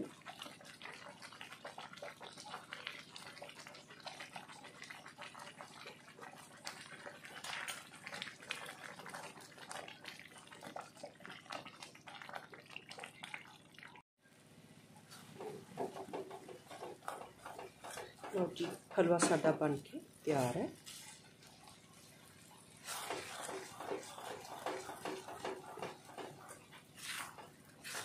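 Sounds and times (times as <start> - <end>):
thick food bubbling and popping: 0.0 - 14.1, 15.1 - 28.0
spatula stirring: 15.1 - 28.0.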